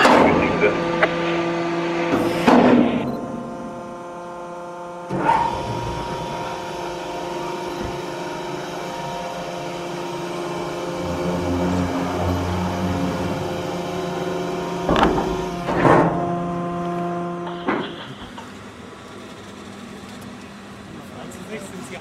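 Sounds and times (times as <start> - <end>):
mechanical hum of several tones: 0.0 - 22.0
low rumble: 10.6 - 15.6.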